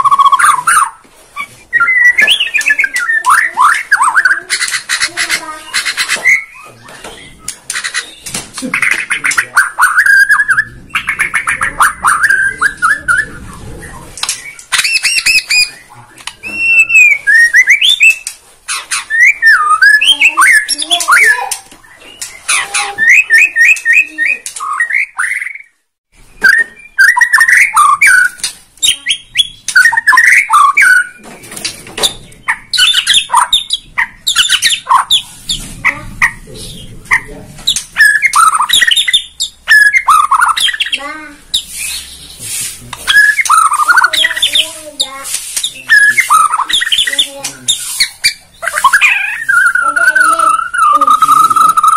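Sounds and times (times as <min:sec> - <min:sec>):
songbird singing varied whistles: 0:01.7 - 0:04.4.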